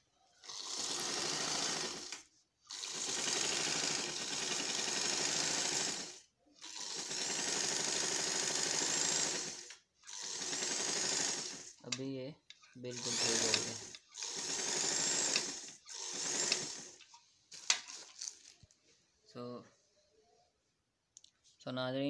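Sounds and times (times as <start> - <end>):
electric sewing machine running: 0.4 - 11.8, 12.9 - 17.1.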